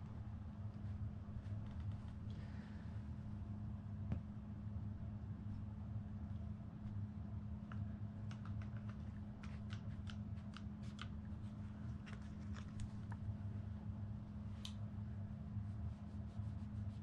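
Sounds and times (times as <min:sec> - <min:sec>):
steady low hum: 0:00.0 - 0:17.0
small sharp clicks and taps: 0:07.7 - 0:11.2.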